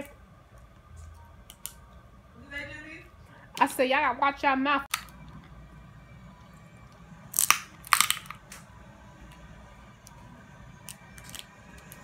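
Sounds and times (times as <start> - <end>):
crab shell cracking: 7.3 - 8.6.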